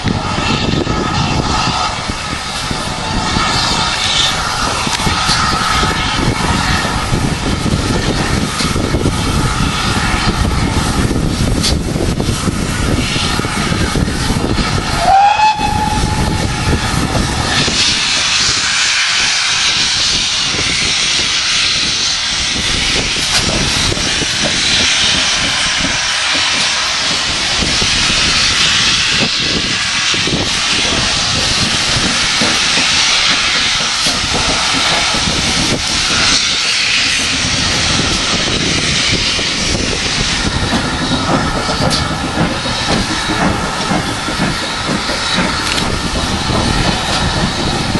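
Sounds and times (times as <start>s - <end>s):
steam locomotive moving: 0.0s - 47.9s
wind buffeting microphone: 0.0s - 47.9s
steam hissing from safety valves: 0.1s - 47.9s
steam whistle: 15.0s - 16.5s.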